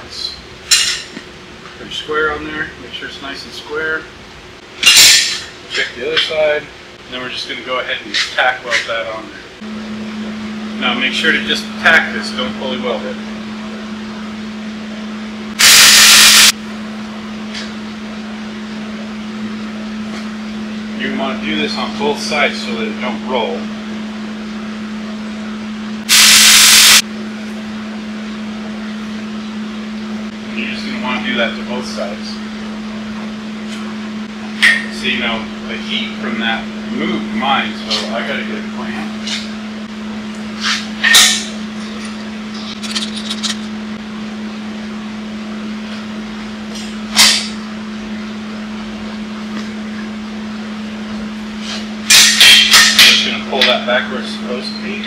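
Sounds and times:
steady low hum: 0:00.0 - 0:55.0
welder arc hissing: 0:15.6 - 0:16.6, 0:26.0 - 0:27.0.

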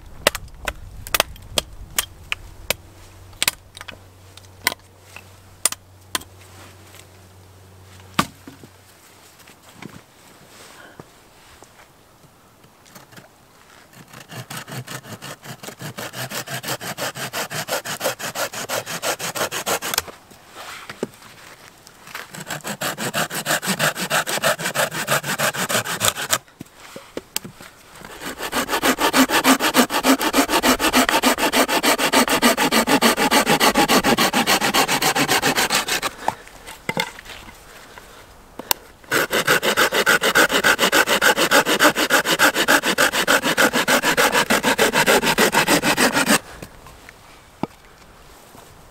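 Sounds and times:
hand saw cutting branch: 0:13.9 - 0:20.2, 0:22.1 - 0:26.4, 0:28.0 - 0:36.4, 0:39.1 - 0:46.4.

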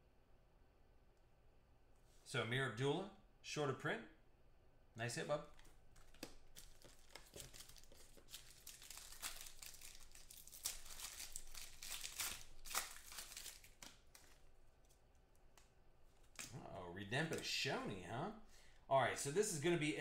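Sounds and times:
foil wrapper crinkling and tearing: 0:06.0 - 0:15.0.

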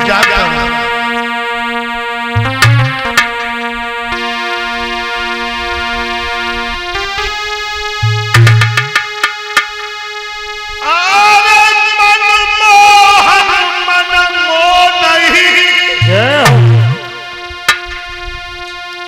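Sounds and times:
electronic keyboard chords: 0:00.0 - 0:19.0
drum hits: 0:02.4 - 0:03.6, 0:08.0 - 0:09.7, 0:16.0 - 0:18.1
man singing: 0:10.8 - 0:17.2.

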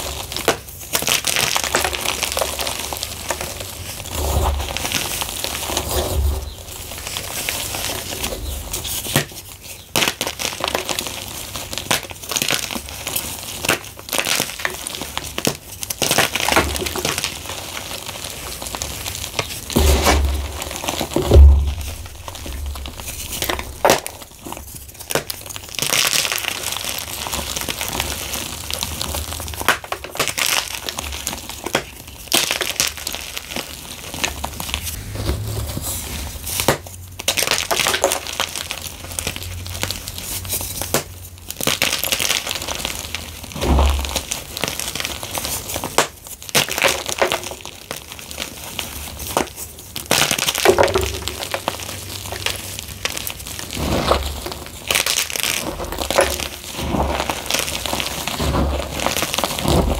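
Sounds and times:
chalk crunching and crackling: 0:00.0 - 0:59.9
deep thump: 0:21.2 - 0:23.1.

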